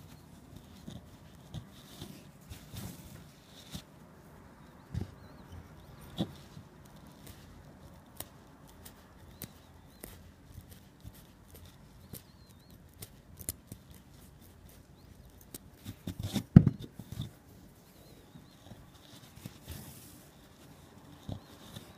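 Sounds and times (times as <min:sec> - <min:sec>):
needle and tweezers working rug yarn: 0:00.0 - 0:21.9
knocks and rustling: 0:15.8 - 0:17.3.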